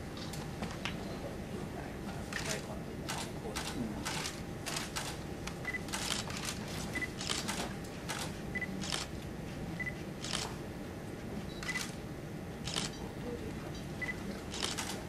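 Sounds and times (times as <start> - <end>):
low room murmur: 0.0 - 15.0
camera shutter clicks: 12.7 - 12.9, 14.5 - 15.0.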